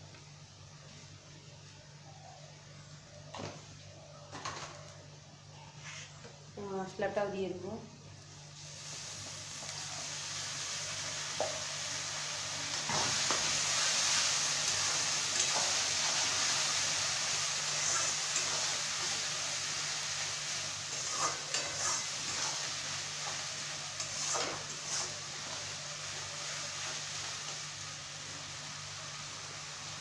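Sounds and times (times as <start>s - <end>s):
paste sizzling in hot oil: 8.6s - 30.0s
metal spatula scraping a pan: 20.9s - 22.6s.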